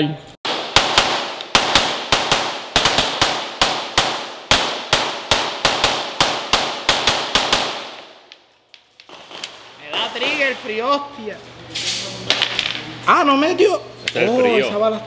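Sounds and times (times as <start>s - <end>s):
handgun firing rapid shots: 0.5s - 8.4s.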